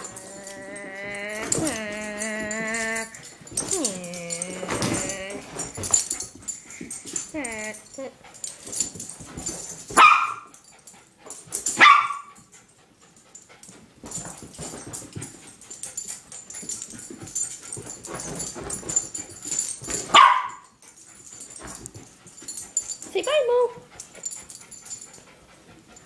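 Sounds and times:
dog scuffling: 0:00.0 - 0:10.6, 0:14.0 - 0:24.6
small dog barking: 0:10.0 - 0:10.5, 0:11.8 - 0:12.3, 0:20.1 - 0:20.6.

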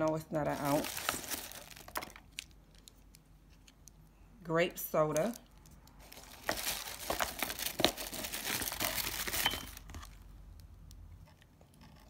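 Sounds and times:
tissue paper crinkling: 0:00.4 - 0:02.2, 0:06.0 - 0:09.9.

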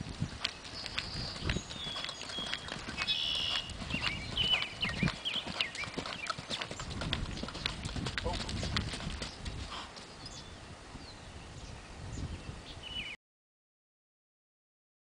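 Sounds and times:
hoofbeats on soft ground: 0:00.0 - 0:10.6.

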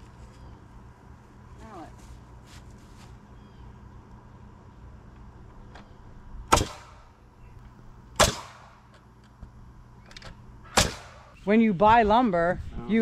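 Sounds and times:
pneumatic nailer firing: 0:06.5 - 0:07.1, 0:08.2 - 0:09.0, 0:10.2 - 0:11.3.

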